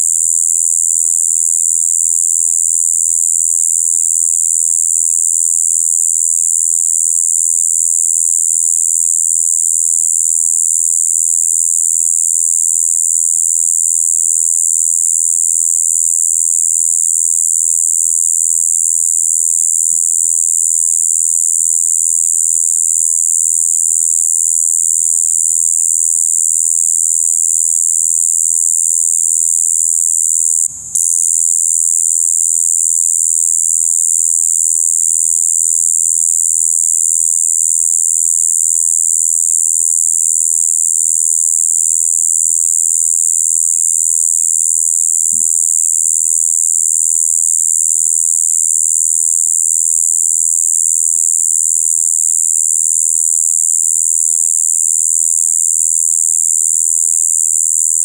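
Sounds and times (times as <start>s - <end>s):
katydid buzzing song: 25.2s - 40.8s, 43.6s - 47.2s.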